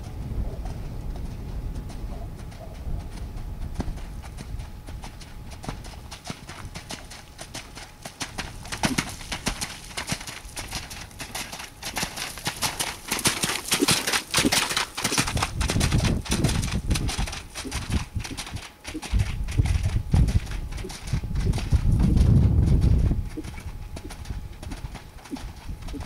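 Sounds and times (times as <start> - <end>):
hoofbeats splashing through puddles: 5.6 - 19.9
low rumble: 19.2 - 23.9.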